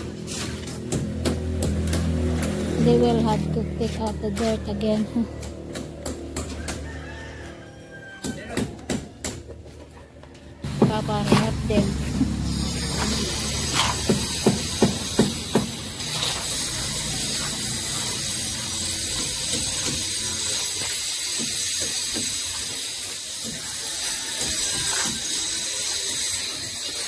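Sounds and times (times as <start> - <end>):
shovel scraping wet concrete: 0.0 - 1.0, 11.1 - 17.6.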